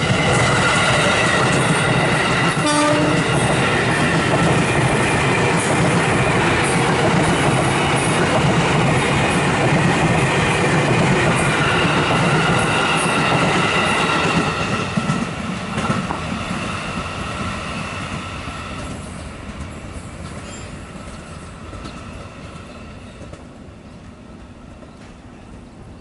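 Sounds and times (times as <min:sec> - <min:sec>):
train rumbling on rails: 0:00.0 - 0:26.0
train wheels squealing: 0:16.4 - 0:23.4.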